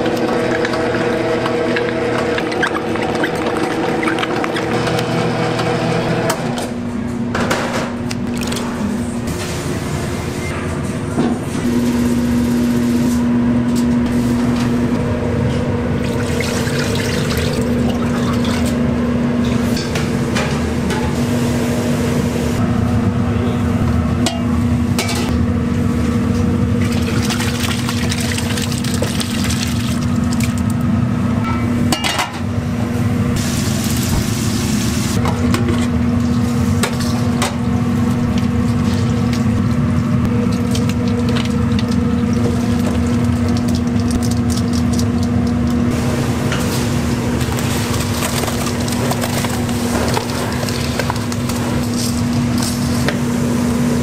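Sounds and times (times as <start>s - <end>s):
liquid being stirred: 0.0s - 5.2s
steady machine hum: 0.0s - 54.0s
utensils and pans clattering: 24.3s - 25.3s, 31.4s - 32.4s.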